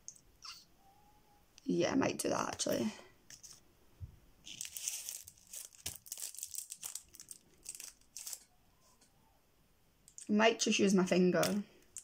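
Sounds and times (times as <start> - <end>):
rustling and crinkling: 2.5 - 9.1.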